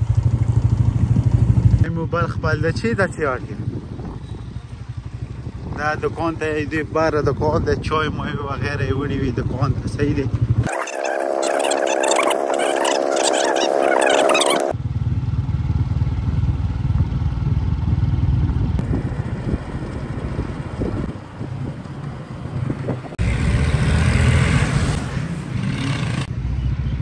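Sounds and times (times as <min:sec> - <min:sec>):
motorcycle engine running: 0:00.0 - 0:07.7, 0:08.3 - 0:10.8, 0:14.3 - 0:23.6.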